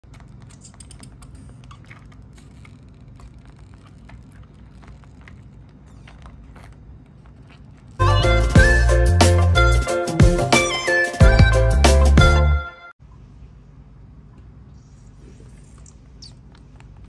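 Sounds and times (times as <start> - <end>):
background music with plucked notes: 8.0 - 12.7.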